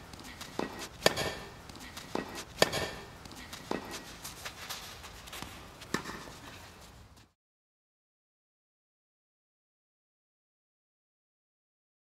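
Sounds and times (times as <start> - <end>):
faint steady hiss: 0.0 - 7.4
sharp knocks: 0.6 - 1.5, 2.1 - 3.1.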